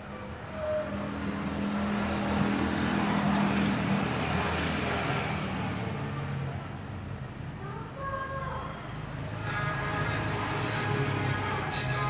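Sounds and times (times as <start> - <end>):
music through small speakers: 9.4 - 12.0.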